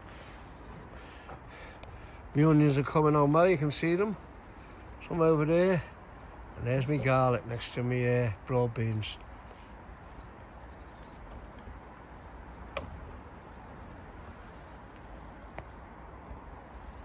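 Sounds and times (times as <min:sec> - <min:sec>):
low outdoor background: 0:00.0 - 0:17.0
small birds chirping: 0:00.0 - 0:17.0
sharp clicks: 0:10.9 - 0:11.8.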